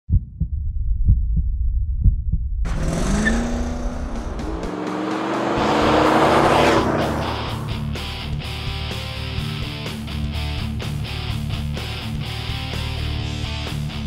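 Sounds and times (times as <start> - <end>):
pickup truck accelerating past: 2.7 - 8.3.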